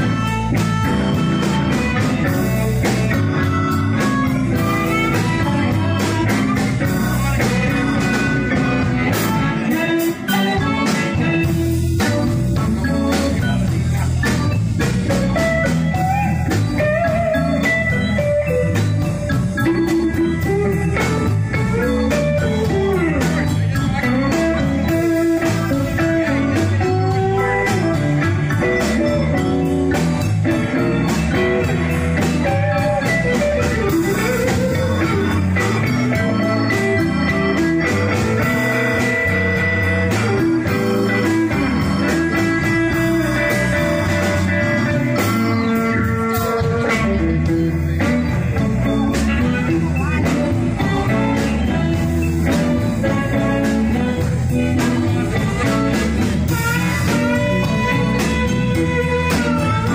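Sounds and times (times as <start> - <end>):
electric guitar solo: 0.0 - 59.9
live blues band playing: 0.0 - 59.9.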